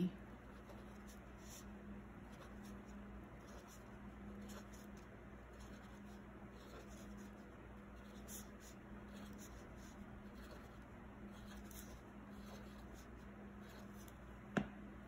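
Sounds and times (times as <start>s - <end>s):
felt-tip marker scratching on paper: 0.4s - 14.2s
sharp tap: 14.5s - 14.8s.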